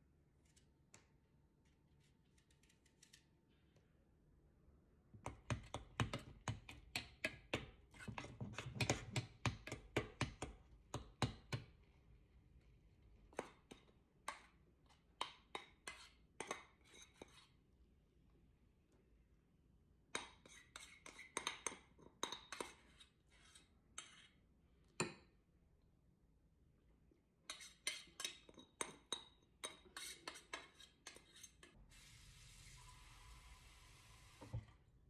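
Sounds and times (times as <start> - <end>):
metal utensil scraping saucepan: 15.8 - 17.5, 22.2 - 24.4, 27.5 - 31.8.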